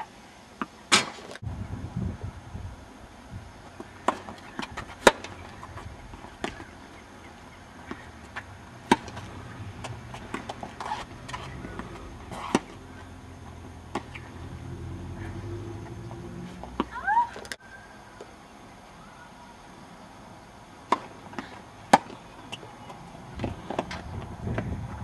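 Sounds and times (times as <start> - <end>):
tennis balls struck with rackets: 3.7 - 6.9, 7.8 - 13.0, 13.9 - 14.4, 20.8 - 24.0
tennis balls bouncing on court: 3.7 - 14.4, 15.2 - 17.6.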